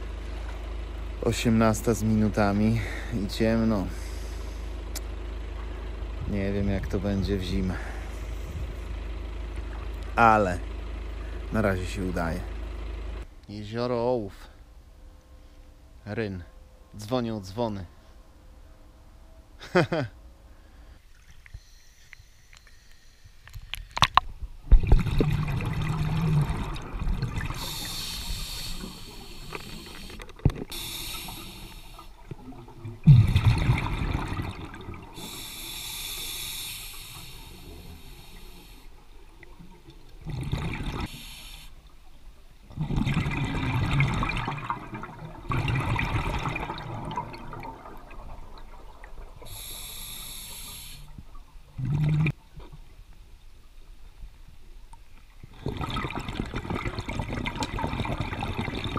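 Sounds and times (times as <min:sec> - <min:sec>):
diver breathing through regulator: 0:03.9 - 0:04.8, 0:27.5 - 0:32.2, 0:35.1 - 0:39.0, 0:41.0 - 0:41.8, 0:49.4 - 0:51.2
exhaled bubbles gushing: 0:24.7 - 0:35.7, 0:39.3 - 0:41.3, 0:42.7 - 0:50.4, 0:51.1 - 0:52.4, 0:55.5 - 0:58.9.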